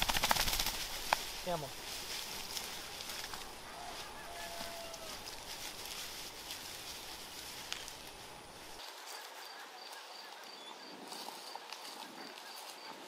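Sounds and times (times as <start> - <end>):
rustling through long grass: 0.0 - 13.0.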